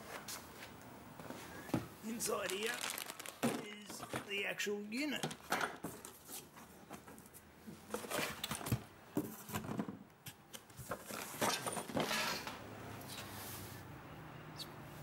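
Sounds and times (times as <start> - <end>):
packaging rustling and knocking: 2.1 - 4.4.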